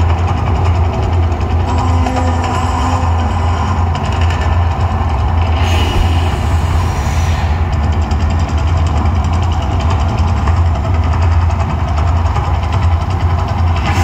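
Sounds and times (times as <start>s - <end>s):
deep rumble with roar: 3.0s - 14.0s
fire bursting hiss: 5.4s - 8.8s.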